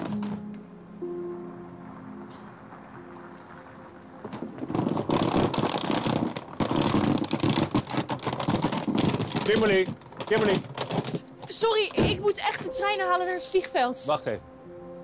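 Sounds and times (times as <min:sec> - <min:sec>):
suitcase wheels rattling over cobblestones: 0:00.0 - 0:00.6, 0:02.8 - 0:12.8
faint music: 0:00.0 - 0:06.0, 0:09.1 - 0:15.0.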